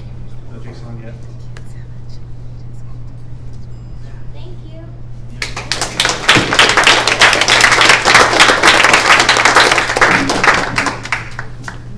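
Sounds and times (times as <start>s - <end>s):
audience applauding: 5.4s - 11.9s.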